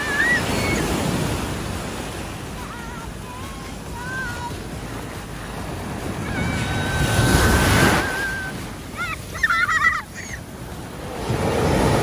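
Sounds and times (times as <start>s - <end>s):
children shrieking: 0.0s - 1.2s, 6.2s - 10.5s
surf washing up a beach: 0.0s - 12.0s.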